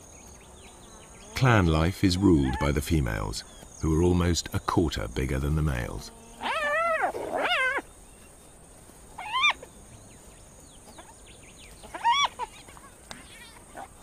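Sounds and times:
hyenas squealing: 0:06.3 - 0:07.9, 0:09.2 - 0:09.7, 0:11.8 - 0:12.8.

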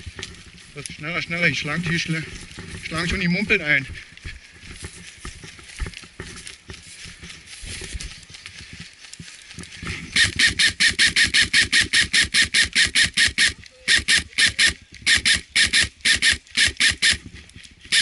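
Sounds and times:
airsoft rifle rapid shots: 0:10.2 - 0:17.2.

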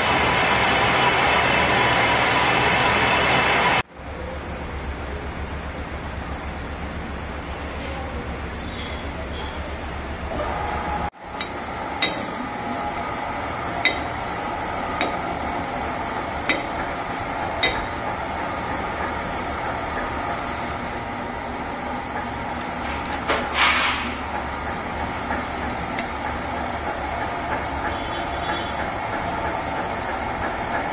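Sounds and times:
high metallic squeals: 0:11.1 - 0:17.8, 0:20.4 - 0:24.5, 0:25.3 - 0:27.1.

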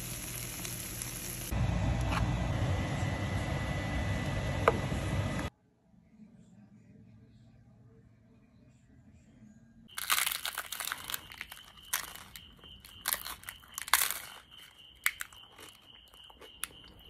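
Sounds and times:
crunching and chewing: 0:09.9 - 0:17.0.

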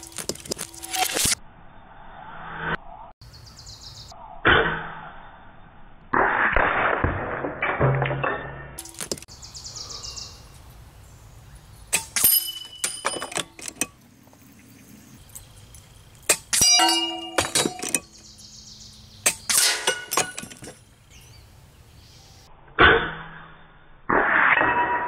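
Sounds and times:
pellets clanging on metal plates: 0:12.0 - 0:14.0, 0:15.3 - 0:18.2, 0:19.3 - 0:20.8.

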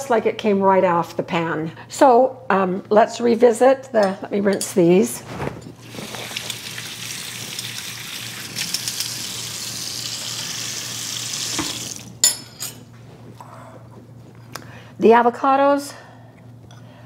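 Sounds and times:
kitchen tap running: 0:05.8 - 0:12.2.

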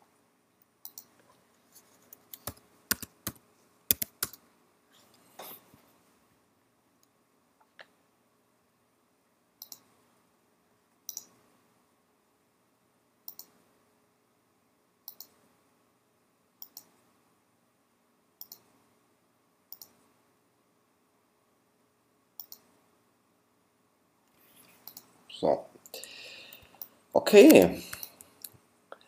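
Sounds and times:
computer mouse clicks: 0:00.6 - 0:01.3, 0:02.1 - 0:04.4, 0:09.6 - 0:09.9, 0:11.1 - 0:11.4, 0:13.3 - 0:13.6, 0:15.0 - 0:15.4, 0:16.6 - 0:17.0, 0:18.4 - 0:18.7, 0:19.7 - 0:20.0, 0:22.4 - 0:22.7, 0:24.8 - 0:25.1, 0:27.9 - 0:28.6.

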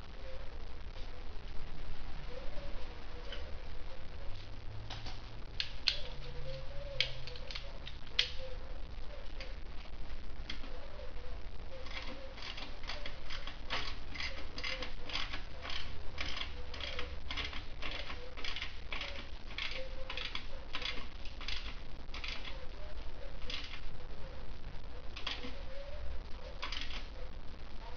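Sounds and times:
short rasping clicks: 0:11.8 - 0:22.6.

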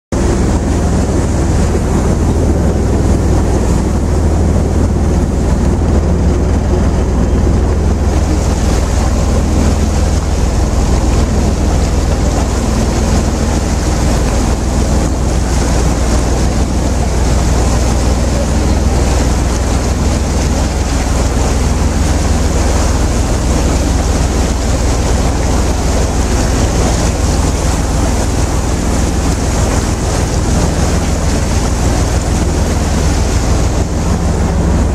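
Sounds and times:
ship engine low rumble: 0:00.1 - 0:34.9
water washing along hull: 0:00.1 - 0:34.9
wind on microphone: 0:00.1 - 0:34.9.

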